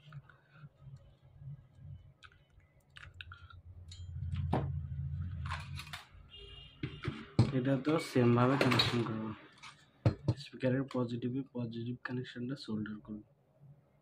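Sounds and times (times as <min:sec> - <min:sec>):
low rubbing rumble: 0:03.7 - 0:06.2.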